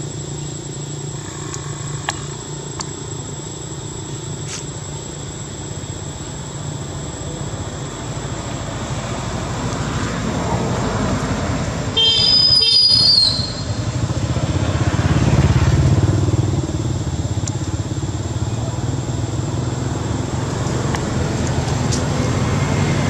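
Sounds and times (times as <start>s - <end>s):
car horn honking: 12.0s - 13.8s
vehicle engine running: 13.5s - 23.0s.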